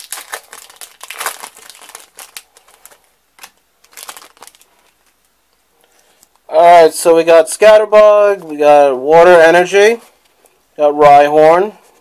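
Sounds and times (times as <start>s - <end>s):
foil wrapper crinkling: 0.0s - 5.2s.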